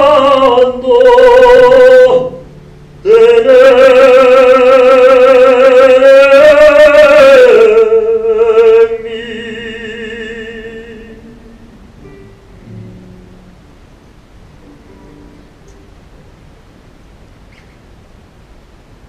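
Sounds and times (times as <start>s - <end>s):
man singing held note with vibrato: 0.0s - 13.6s.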